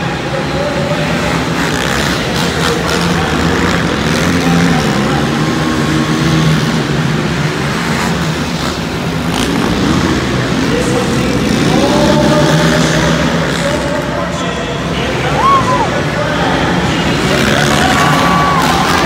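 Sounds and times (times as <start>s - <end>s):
quad engines running: 0.0s - 19.0s
engine revving upward: 15.0s - 19.0s.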